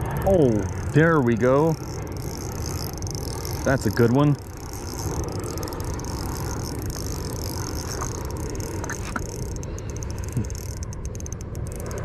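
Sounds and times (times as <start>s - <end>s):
fishing reel cranking: 0.0s - 12.0s
faint clicks: 1.8s - 12.0s.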